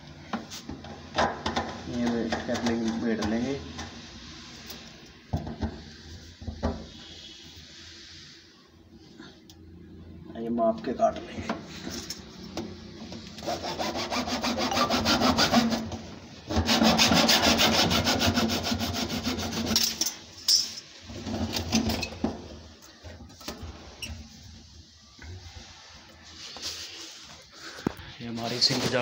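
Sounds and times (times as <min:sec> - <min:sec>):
saw rasping through plastic hose: 0:13.4 - 0:15.9, 0:16.5 - 0:19.8
faint scrapes: 0:23.6 - 0:29.0.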